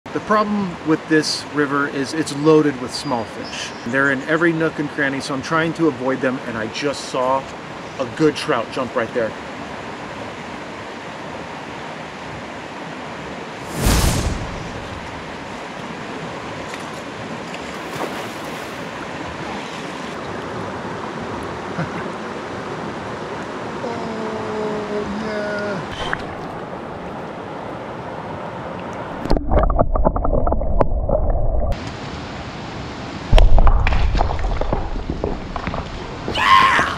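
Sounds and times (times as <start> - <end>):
loud burst of rushing noise: 13.6 - 15.4
loud low rumbling: 13.7 - 15.3
river flowing over rocks: 14.8 - 36.9.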